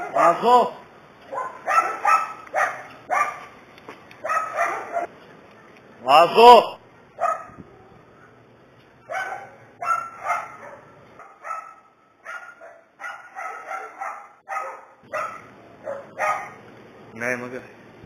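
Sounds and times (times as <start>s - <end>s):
dog barking: 0.0s - 0.4s, 1.3s - 3.5s, 4.2s - 5.1s, 7.1s - 7.6s, 9.0s - 16.6s.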